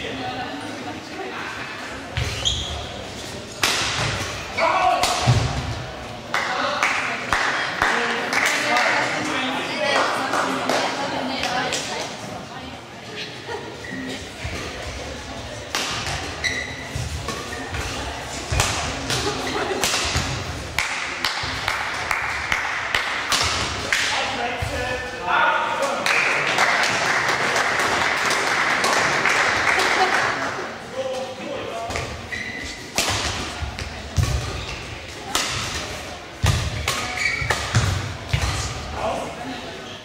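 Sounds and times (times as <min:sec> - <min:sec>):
shoes squeaking on court floor: 0:02.2 - 0:03.3, 0:16.1 - 0:18.0, 0:31.9 - 0:32.9, 0:36.7 - 0:38.8
racket striking shuttlecock: 0:35.3 - 0:38.7.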